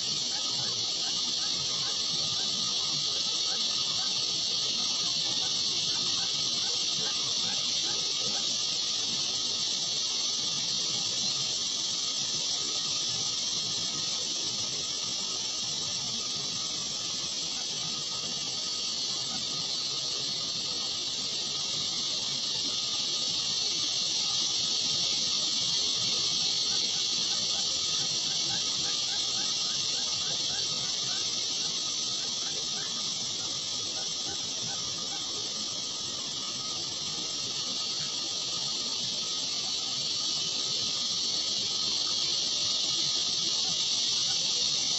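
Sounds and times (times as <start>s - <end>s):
steady high-pitched hiss: 0.0s - 44.9s.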